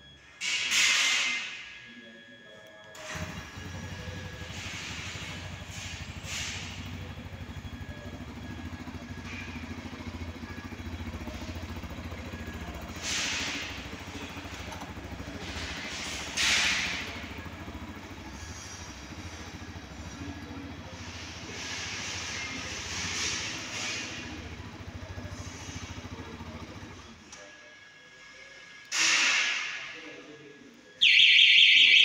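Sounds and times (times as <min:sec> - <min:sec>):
motorcycle engine idling: 0:03.1 - 0:27.2.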